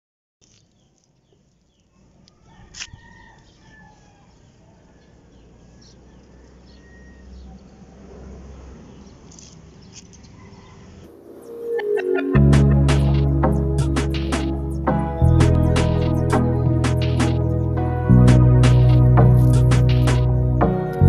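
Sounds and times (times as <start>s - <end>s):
distant bird calls: 0.5s - 21.0s
sharp click: 16.8s - 17.4s.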